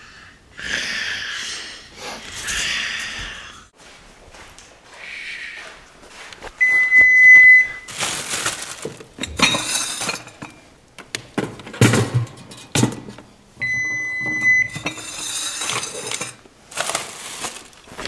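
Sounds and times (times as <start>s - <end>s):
kitchen items clinking and knocking: 7.0s - 18.0s.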